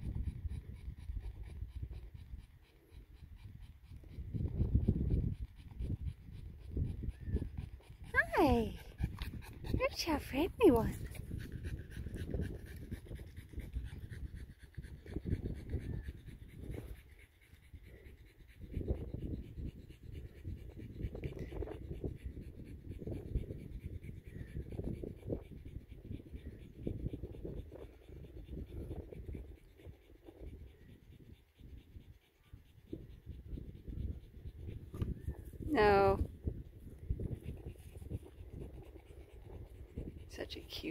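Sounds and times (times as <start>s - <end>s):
dog panting: 0.0s - 40.9s.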